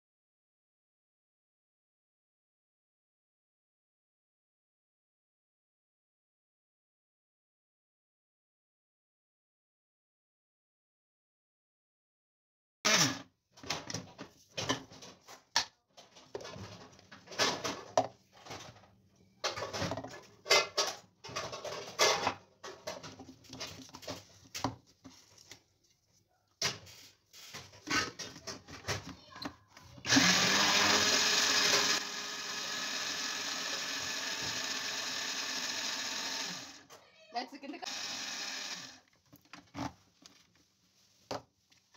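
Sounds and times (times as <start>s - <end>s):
blender motor grinding: 12.9s - 13.3s, 30.0s - 36.9s, 37.8s - 39.0s.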